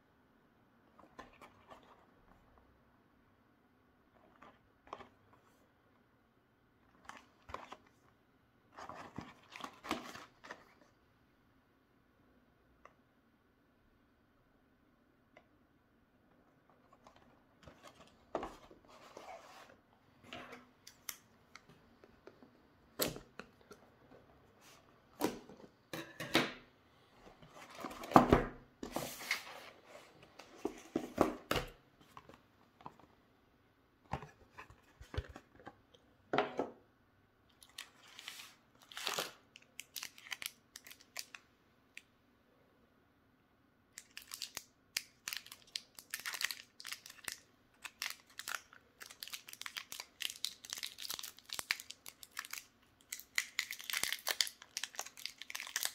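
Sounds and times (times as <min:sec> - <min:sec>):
foil wrappers crinkling: 0:44.0 - 0:55.9.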